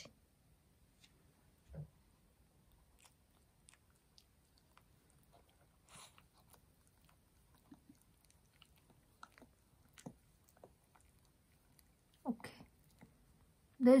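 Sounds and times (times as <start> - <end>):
dog licking hands: 2.7 - 13.4.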